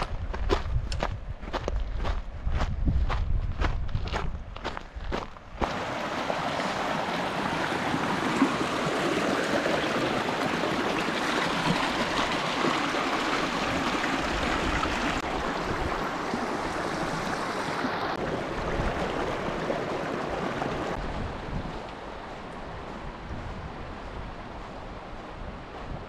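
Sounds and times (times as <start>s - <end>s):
creek water babbling over rocks: 5.6s - 22.5s.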